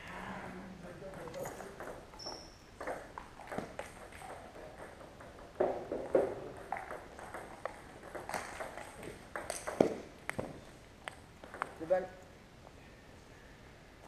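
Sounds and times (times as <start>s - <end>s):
table tennis ball bouncing: 1.0s - 11.8s.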